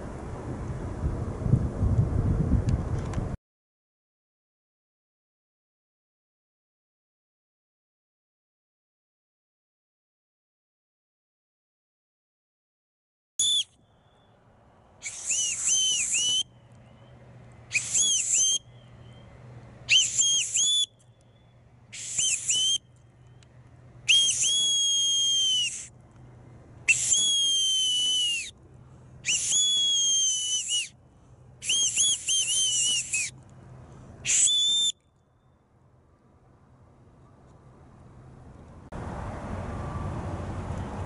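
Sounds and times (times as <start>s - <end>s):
high bosun's whistle blasts: 13.4s - 14.2s, 15.0s - 16.5s, 17.7s - 19.2s, 19.9s - 21.0s, 21.9s - 22.9s, 24.1s - 25.9s, 26.9s - 28.6s, 29.2s - 31.0s, 31.6s - 33.4s, 34.2s - 35.0s.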